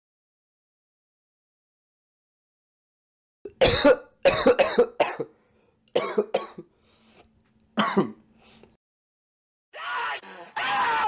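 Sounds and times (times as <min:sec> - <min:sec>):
person coughing: 0:03.5 - 0:05.4, 0:06.0 - 0:06.7, 0:07.8 - 0:08.2.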